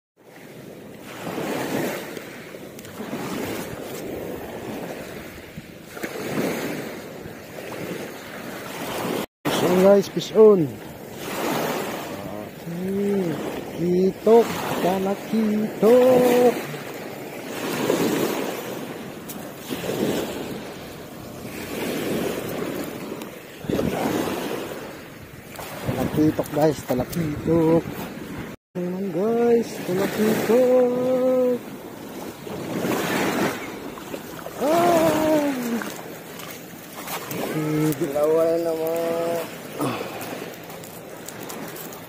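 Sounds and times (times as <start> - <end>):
small waves washing on shore: 0.2 - 42.0
wind on microphone: 11.0 - 28.6.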